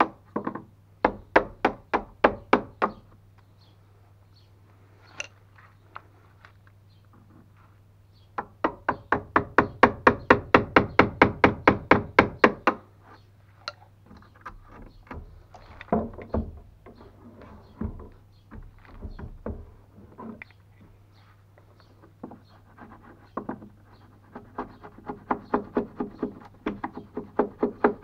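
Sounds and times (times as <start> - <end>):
chisel scraping wood: 22.2 - 28.0.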